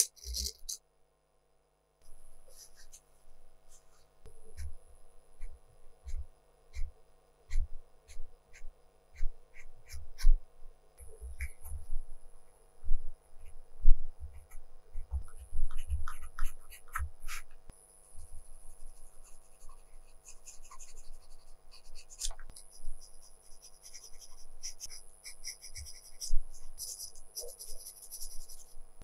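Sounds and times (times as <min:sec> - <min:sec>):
pencil scratching on paper: 0:00.0 - 0:00.8, 0:02.5 - 0:03.0, 0:05.4 - 0:10.4, 0:11.1 - 0:12.0, 0:14.3 - 0:28.8.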